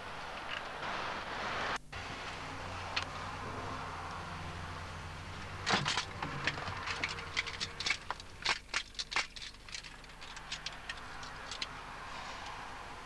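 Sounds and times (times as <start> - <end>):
low steady hum: 0.0 - 13.0
equipment clicks and clatters: 5.6 - 11.7.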